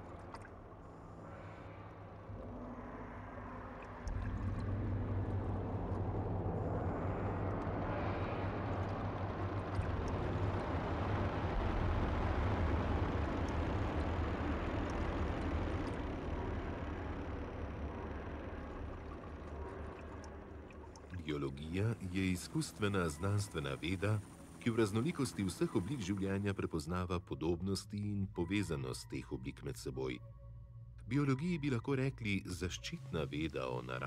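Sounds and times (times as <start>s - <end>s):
low rumble: 0.0s - 26.8s.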